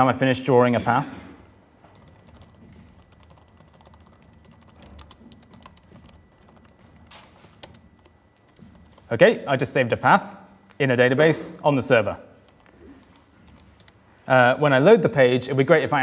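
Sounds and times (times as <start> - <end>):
laptop keyboard typing: 1.8 - 9.2, 12.4 - 14.0.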